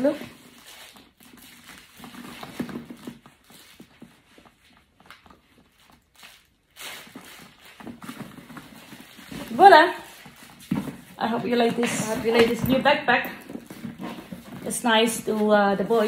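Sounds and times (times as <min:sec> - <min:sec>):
faint footsteps on floor: 0:07.8 - 0:16.0.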